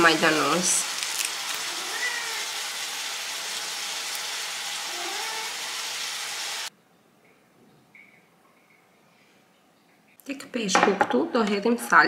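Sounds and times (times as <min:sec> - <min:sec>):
food sizzling in a frying pan: 0:00.0 - 0:06.7.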